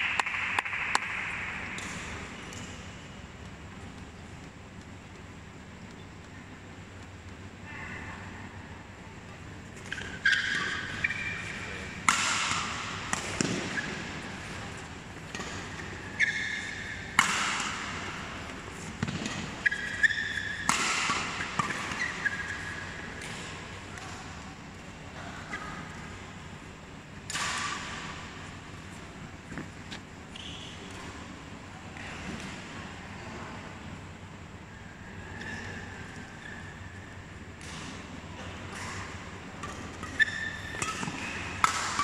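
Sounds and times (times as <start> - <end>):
rackets hitting shuttlecock: 0.0 - 6.4, 9.7 - 24.5, 27.2 - 28.7, 37.5 - 42.0
shoes squeaking on court: 9.7 - 23.7, 29.4 - 31.3.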